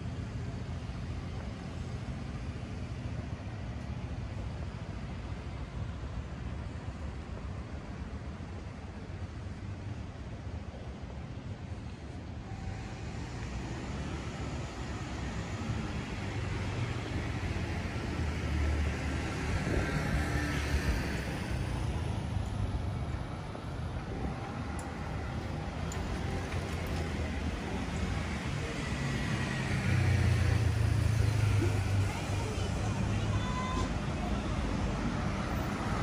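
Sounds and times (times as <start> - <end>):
street traffic hum: 0.0 - 36.0
car passing: 12.5 - 36.0.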